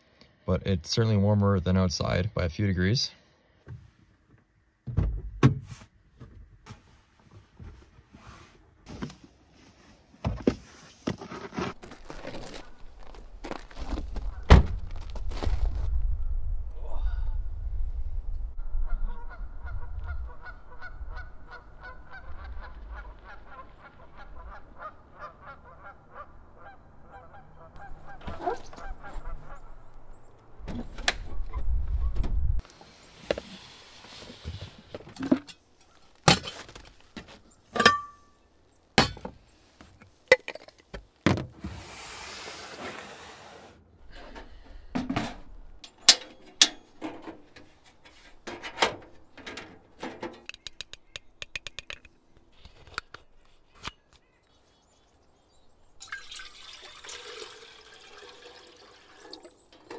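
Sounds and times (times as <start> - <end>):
geese honking: 18.8 - 29.8.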